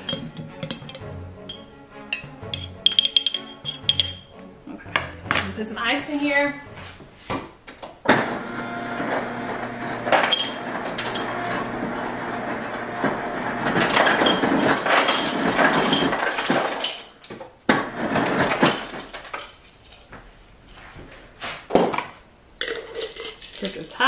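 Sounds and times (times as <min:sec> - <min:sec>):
machine hum: 0:08.2 - 0:14.0
ice rattling and clattering: 0:13.6 - 0:17.1, 0:22.6 - 0:24.0.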